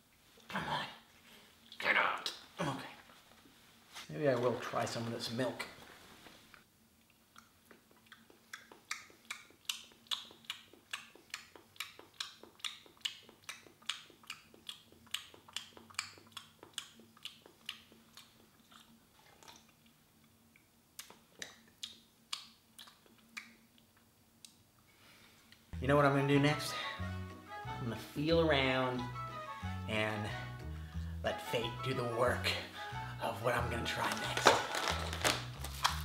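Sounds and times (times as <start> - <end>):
wet mouth clicks eating: 7.0 - 24.6.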